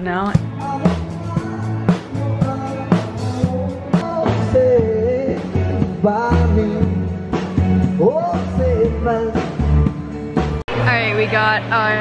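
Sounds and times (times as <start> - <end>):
bass line: 0.0 - 12.0
person singing: 0.4 - 9.8.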